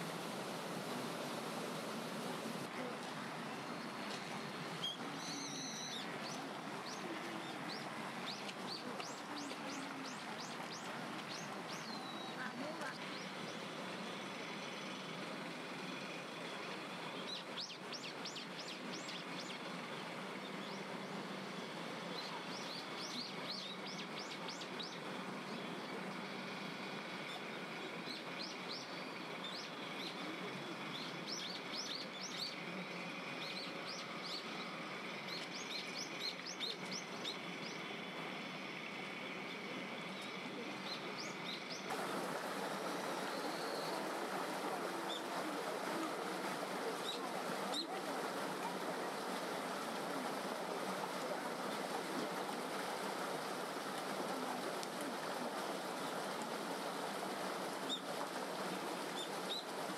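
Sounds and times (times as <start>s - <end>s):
outdoor background noise: 0.0s - 59.9s
stream running water: 0.0s - 59.9s
small birds chirping: 3.6s - 15.2s, 15.9s - 19.7s, 27.2s - 38.5s, 39.2s - 52.1s, 58.9s - 59.8s.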